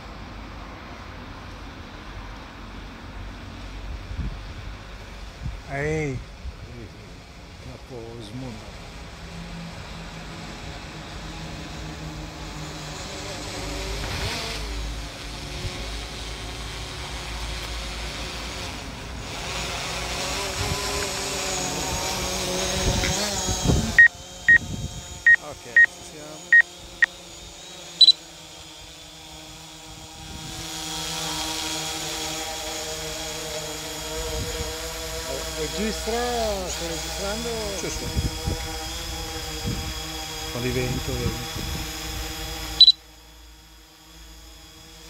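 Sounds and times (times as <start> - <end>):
drone propellers buzzing: 3.6 - 45.0
wind on microphone: 20.4 - 21.2, 21.8 - 25.3, 29.9 - 30.7, 37.8 - 40.1, 40.8 - 42.3.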